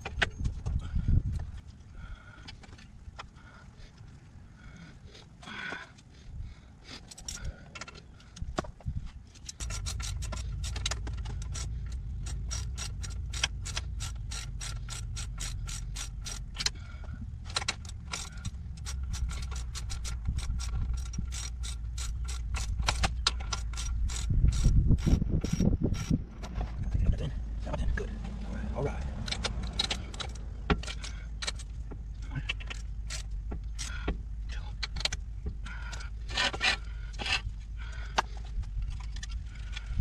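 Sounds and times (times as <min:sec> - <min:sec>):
low rumble: 0:08.8 - 0:40.0
ratchet wrench clicking: 0:09.4 - 0:16.8, 0:17.5 - 0:26.2, 0:29.0 - 0:31.8, 0:32.5 - 0:34.2.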